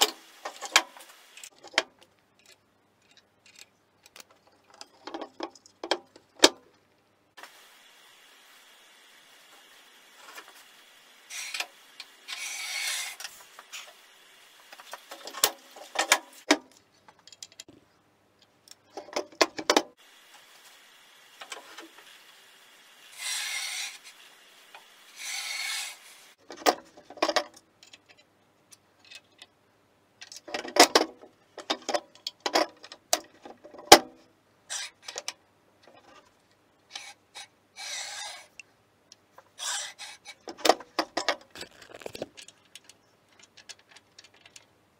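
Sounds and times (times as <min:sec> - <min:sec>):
metal gauge scraping on saw table: 0:12.3 - 0:14.0, 0:23.1 - 0:24.2, 0:25.1 - 0:26.4, 0:36.9 - 0:38.6, 0:39.6 - 0:40.5
metal gauge clicks and knocks: 0:18.4 - 0:19.9.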